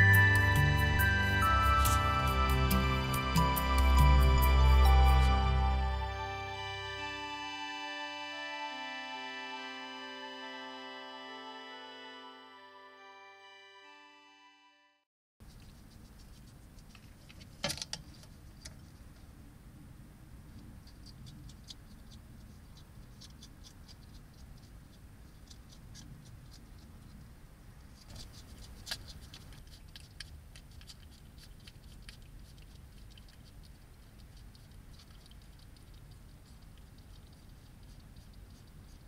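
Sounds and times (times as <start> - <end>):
low background noise: 15.4 - 39.0
hedgehog chewing clicks: 20.5 - 27.3, 28.0 - 39.0.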